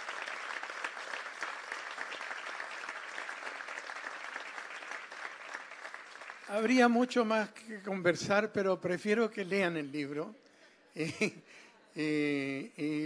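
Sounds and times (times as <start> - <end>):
audience applauding: 0.0 - 7.1.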